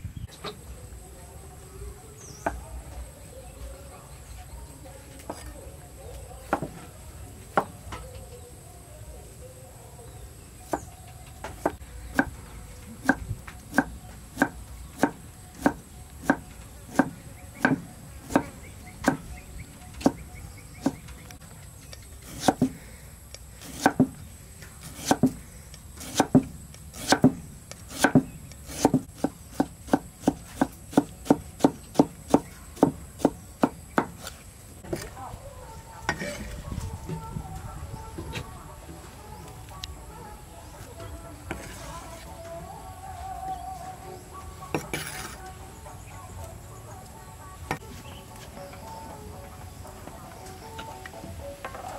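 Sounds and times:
cleaver chopping on wooden block: 13.0s - 19.2s, 22.2s - 22.8s, 23.6s - 24.2s, 24.8s - 25.4s, 26.0s - 34.3s.

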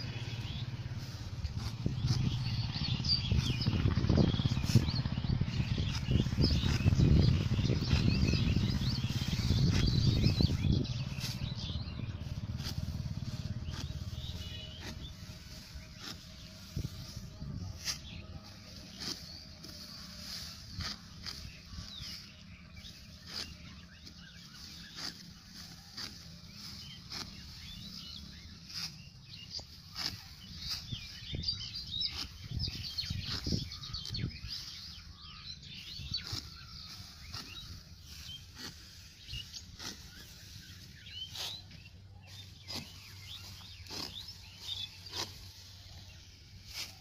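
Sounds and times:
birds chirping: 0.0s - 47.0s
sickle cutting dry stalks: 0.0s - 47.0s
stalks rustling: 36.1s - 47.0s.

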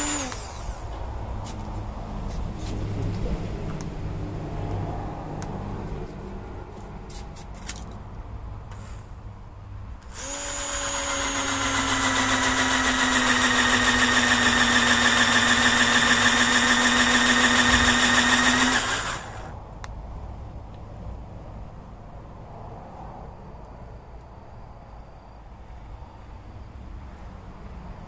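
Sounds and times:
electric drill whining: 0.0s - 0.9s, 10.0s - 19.6s.

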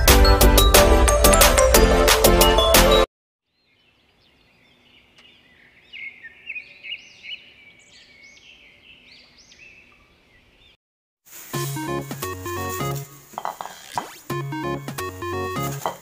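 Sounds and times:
small birds chirping: 3.4s - 10.8s.

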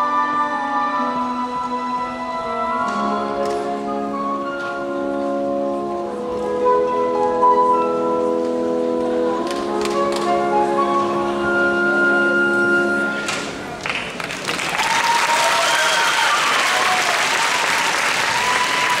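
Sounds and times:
audience applause: 13.7s - 19.0s.

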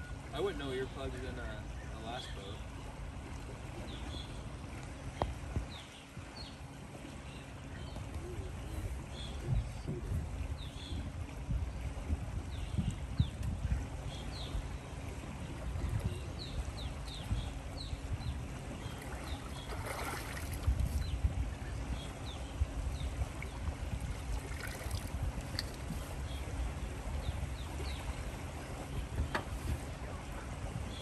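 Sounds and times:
wind rumble on microphone: 0.0s - 31.0s
shallow water sloshing: 11.2s - 31.0s
water splash: 18.8s - 21.0s, 24.2s - 25.8s.

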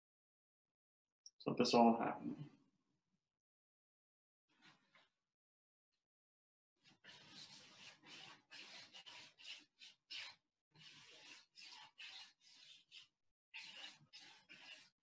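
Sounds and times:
paintbrush scratching on canvas: 6.8s - 15.0s.

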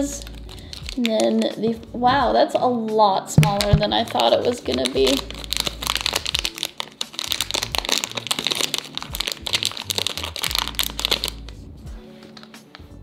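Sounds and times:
plastic wrapping crinkling: 0.0s - 1.5s, 3.6s - 11.5s, 12.2s - 12.6s.

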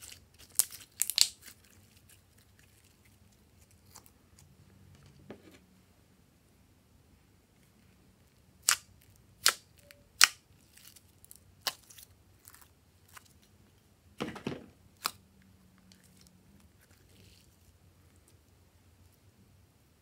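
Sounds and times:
squishy slime crackle: 0.0s - 4.1s, 8.6s - 13.5s, 15.9s - 18.4s.

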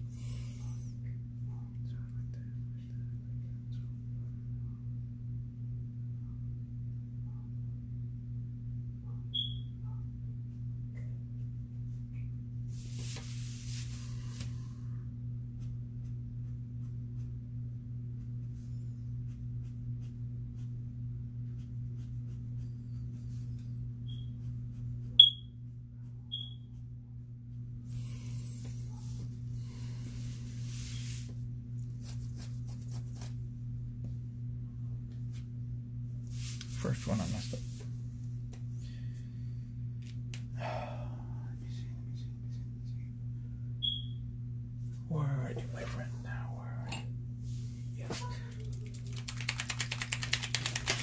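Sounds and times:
steady low hum: 0.0s - 51.0s
short high-pitched chirps: 9.3s - 9.7s, 25.2s - 25.5s, 43.8s - 44.2s.

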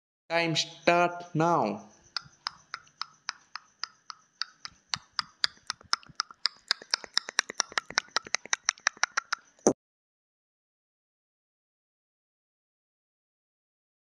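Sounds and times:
timer ticking clicks: 2.1s - 9.7s.

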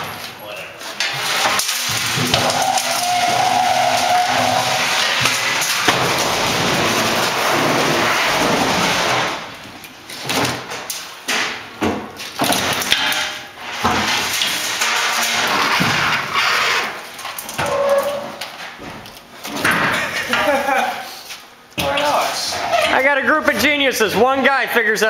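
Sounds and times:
hand truck rumbling on concrete: 0.9s - 9.4s.

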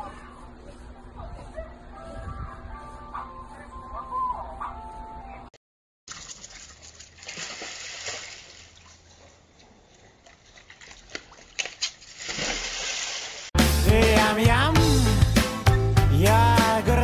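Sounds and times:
water splashing in a hot tub: 6.1s - 9.3s, 10.2s - 13.6s.

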